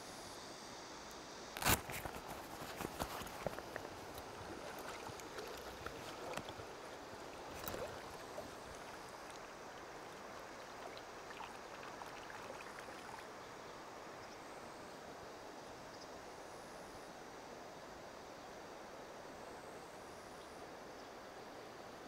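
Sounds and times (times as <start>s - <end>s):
river water flowing: 1.8s - 20.9s.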